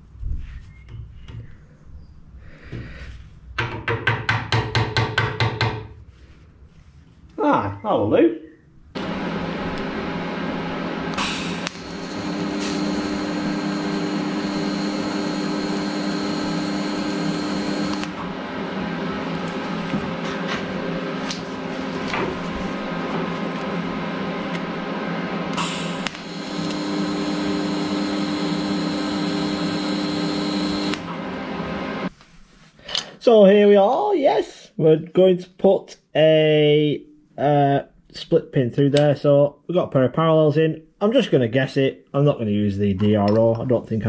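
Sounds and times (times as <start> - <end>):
steady whir: 9.0 - 20.0, 22.0 - 32.1
welding arc buzzing: 9.0 - 20.0, 20.8 - 32.1
arc striking crackle: 11.2 - 13.2.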